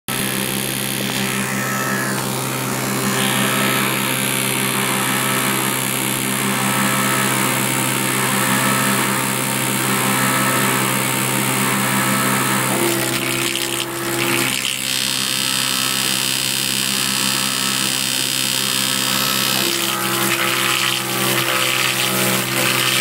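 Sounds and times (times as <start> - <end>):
log lathe machine drone: 0.1 - 23.0
hiss of cutting wood: 19.0 - 23.0.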